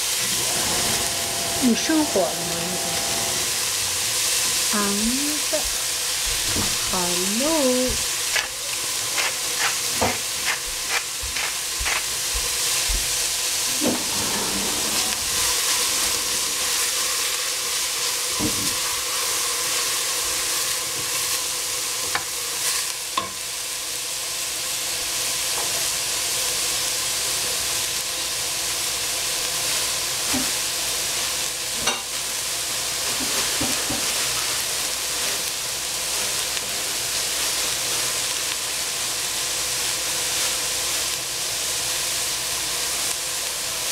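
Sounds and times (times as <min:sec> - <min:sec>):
vegetables sizzling in a pot: 0:00.0 - 0:43.9
wooden spoon scraping a pot: 0:08.3 - 0:12.1.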